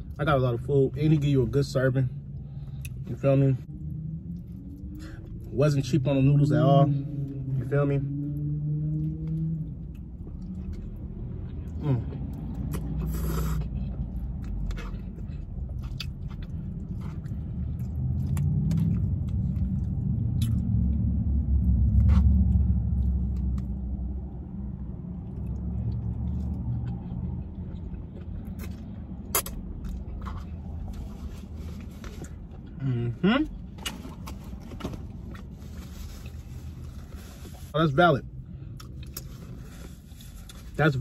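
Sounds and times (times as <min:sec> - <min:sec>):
low rumble: 0:03.6 - 0:40.6
chewing: 0:09.2 - 0:21.0, 0:25.2 - 0:32.8.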